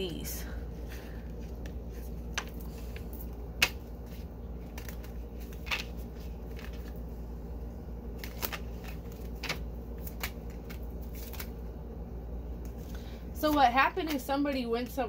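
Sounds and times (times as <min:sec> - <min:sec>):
steady low hum: 0:00.0 - 0:15.0
cards shuffled by hand: 0:01.0 - 0:07.1, 0:08.1 - 0:11.7
card slaps: 0:03.5 - 0:03.9.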